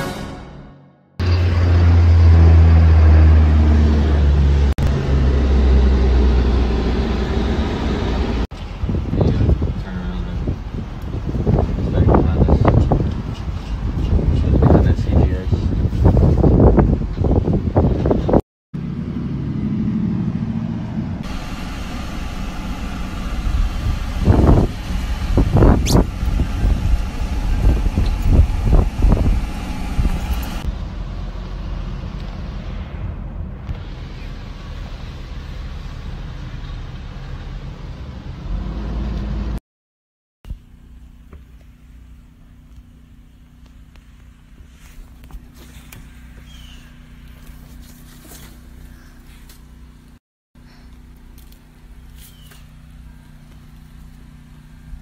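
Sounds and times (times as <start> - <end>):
wind buffeting microphone: 8.6 - 18.4, 21.2 - 30.7
car cabin rumble: 21.2 - 30.7.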